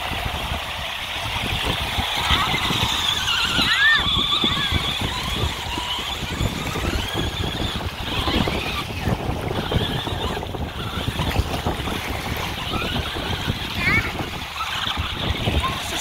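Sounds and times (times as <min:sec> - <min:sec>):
small waves washing on shore: 0:00.0 - 0:16.0
whining electric toy motors: 0:00.0 - 0:16.0
wind buffeting microphone: 0:00.0 - 0:16.0.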